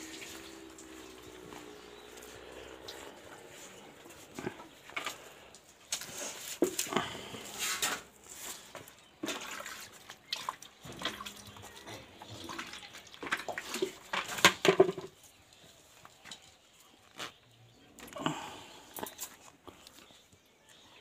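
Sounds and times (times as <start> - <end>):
milk squirting into plastic bucket: 8.8 - 15.0.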